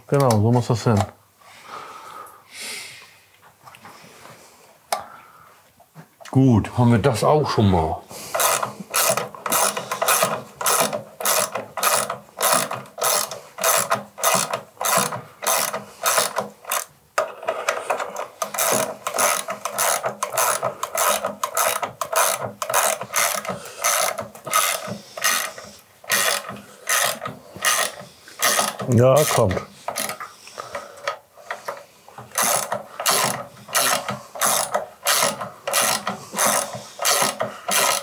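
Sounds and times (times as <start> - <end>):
ratchet wrench clicking: 8.4 - 16.9, 18.4 - 30.2, 32.3 - 38.0.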